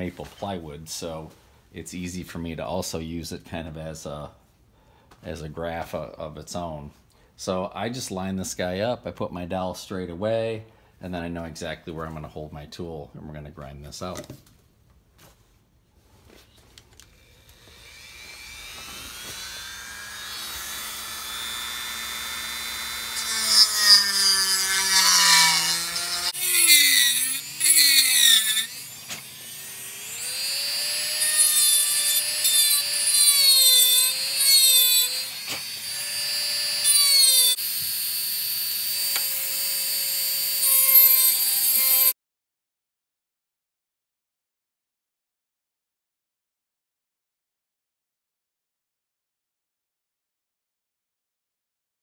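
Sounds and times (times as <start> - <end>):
rotary tool grinding wood: 17.1 - 42.2.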